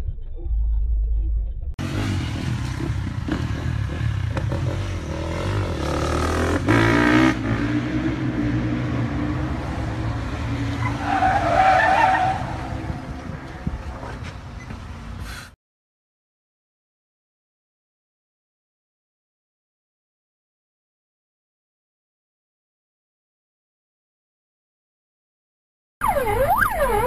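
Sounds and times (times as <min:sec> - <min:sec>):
tyres squealing: 0:10.8 - 0:12.8.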